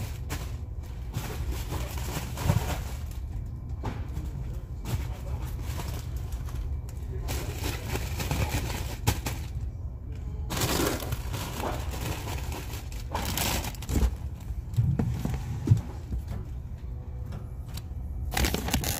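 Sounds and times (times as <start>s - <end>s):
steady low hum: 0.0s - 18.9s
packaging rustling and crinkling: 18.3s - 18.9s.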